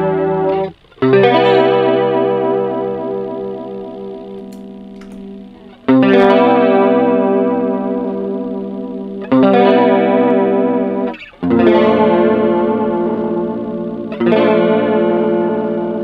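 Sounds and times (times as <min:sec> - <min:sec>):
electric guitar chords with chorus: 0:00.0 - 0:16.0.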